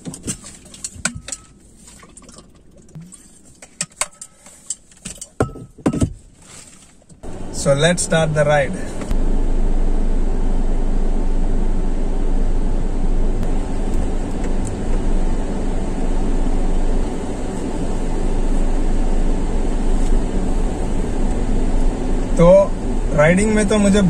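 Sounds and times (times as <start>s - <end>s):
car engine and road noise: 0.0s - 24.0s.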